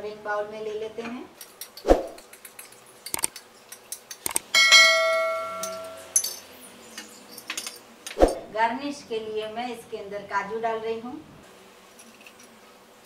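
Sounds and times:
spoon clinking on glass bowl: 4.0s - 6.5s
bright bell chime: 4.6s - 6.2s.

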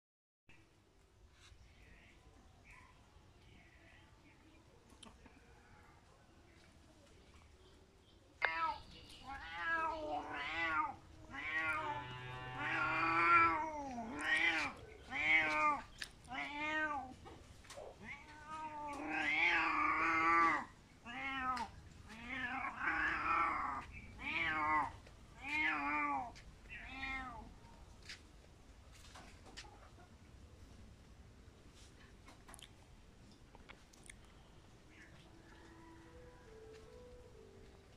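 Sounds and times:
cat meowing: 8.4s - 17.2s, 17.9s - 27.5s.

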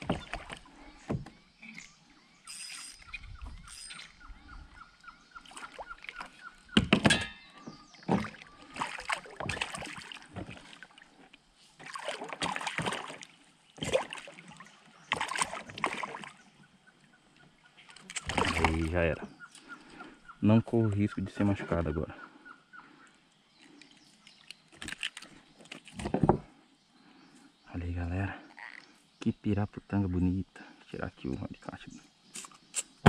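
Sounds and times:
fish thrashing and splashing: 8.0s - 11.2s, 11.8s - 16.4s, 18.0s - 19.0s.

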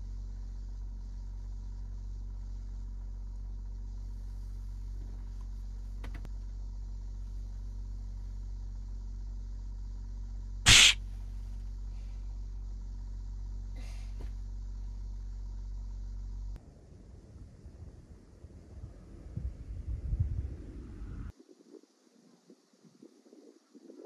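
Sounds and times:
low steady hum: 0.0s - 21.3s
person sneezing: 10.7s - 11.0s, 13.8s - 14.2s.

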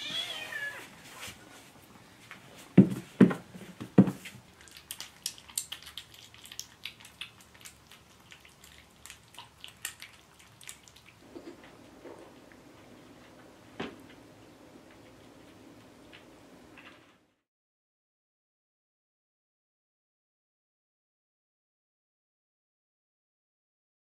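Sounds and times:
kittens eating wet food: 1.6s - 17.1s.

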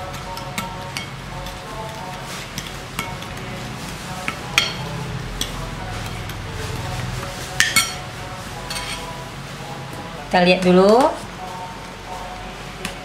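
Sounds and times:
metal spoon scraping glass plate: 8.7s - 9.1s.

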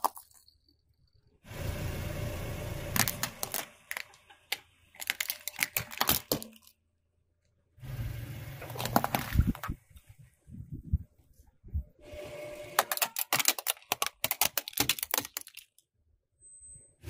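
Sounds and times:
plastic toys cracking and snapping: 0.0s - 0.5s, 3.0s - 6.8s, 12.8s - 15.9s.

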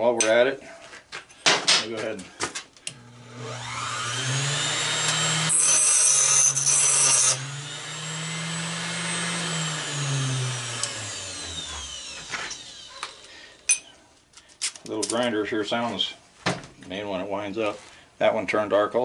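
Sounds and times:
electric grinder whining: 2.9s - 13.7s
grinder grinding metal: 2.9s - 13.8s.

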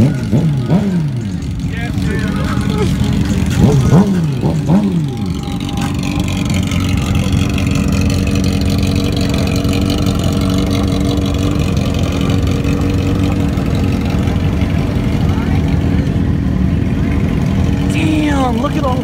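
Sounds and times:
motorcycle engines idling: 0.0s - 19.0s.

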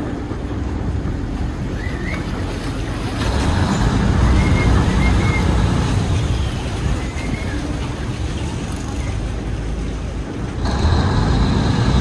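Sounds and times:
boat engine rumbling: 0.0s - 12.0s
water splashing against hull: 0.0s - 12.0s
high whistle-like chirps: 4.2s - 5.7s.

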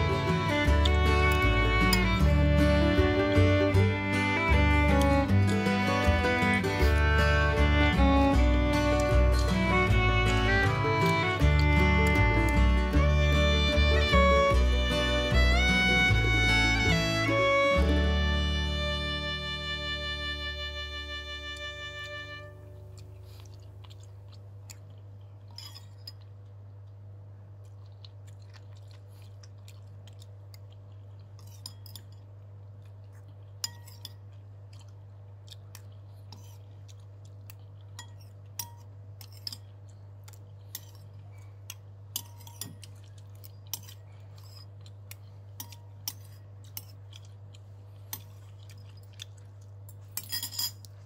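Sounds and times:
steady low hum: 0.0s - 51.0s
faint chewing: 22.5s - 51.0s
spoon scraping ceramic bowl: 25.5s - 26.2s, 31.4s - 32.2s, 33.6s - 34.2s, 36.3s - 36.6s, 38.0s - 39.6s, 42.2s - 42.8s, 50.2s - 50.9s.

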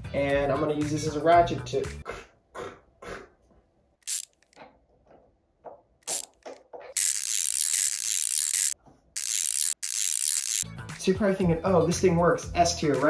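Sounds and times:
rapid ratcheting rasp: 4.1s - 4.6s, 6.0s - 10.6s.

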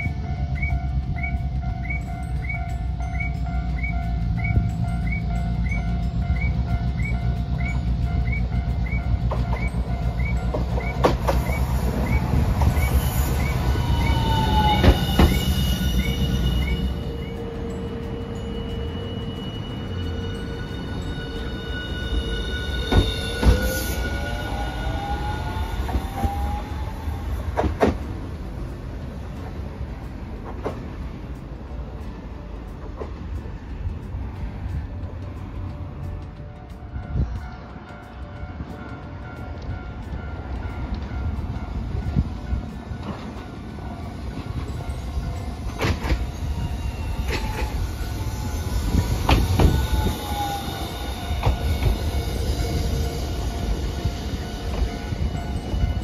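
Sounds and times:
rumble of tram wheels: 0.0s - 56.0s
tram motors whining: 0.0s - 56.0s
wheels clacking over track joints: 3.2s - 15.6s, 25.8s - 31.5s, 37.4s - 46.5s.

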